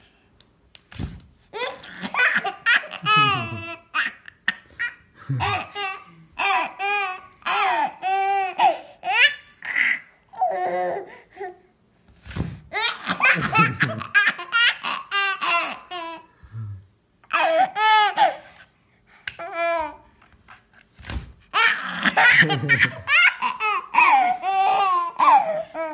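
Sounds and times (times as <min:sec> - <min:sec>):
baby laughing: 0:01.6 - 0:10.8, 0:12.7 - 0:16.3, 0:21.6 - 0:25.9.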